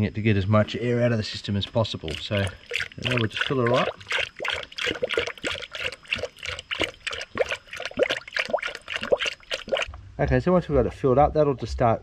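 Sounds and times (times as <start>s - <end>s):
coolant gurgling into funnel: 1.3s - 10.0s.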